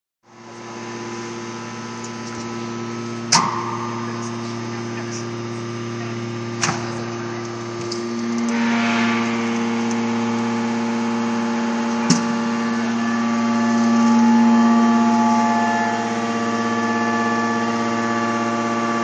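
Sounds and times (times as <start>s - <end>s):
hydraulic press humming: 0.5s - 19.0s.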